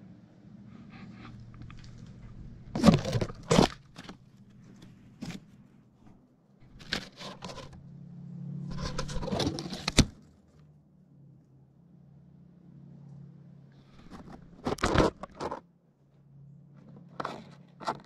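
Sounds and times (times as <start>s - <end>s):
camera handling scrapes and knocks: 1.0s - 7.8s, 8.7s - 10.2s, 14.0s - 15.6s, 17.0s - 18.0s.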